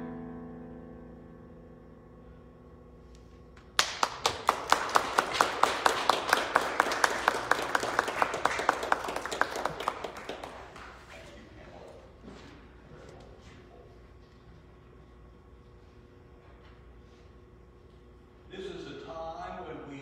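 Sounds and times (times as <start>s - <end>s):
person clapping close by: 3.6s - 11.2s
congregation applauding: 3.6s - 12.0s.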